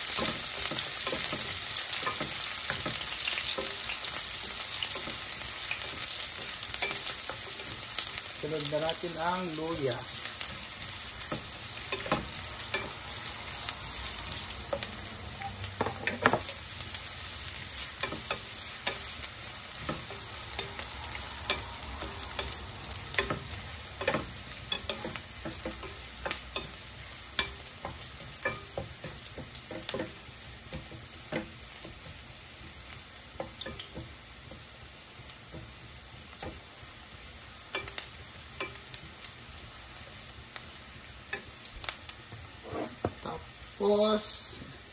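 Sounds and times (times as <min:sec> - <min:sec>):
food sizzling in oil: 0:00.0 - 0:44.9
wooden spatula scraping pan: 0:42.5 - 0:43.4.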